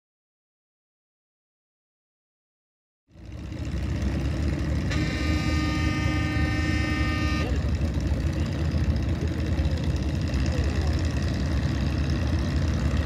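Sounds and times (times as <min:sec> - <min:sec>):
tractor engines rumbling: 0:03.1 - 0:13.0
horn sounding steady note: 0:04.7 - 0:08.0.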